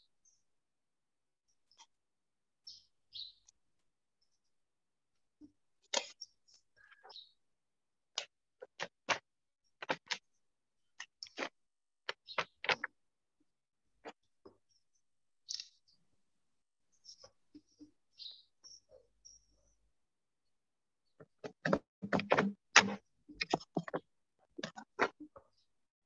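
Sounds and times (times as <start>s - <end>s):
sharp clicks and knocks: 8.2s - 9.2s, 21.2s - 25.4s.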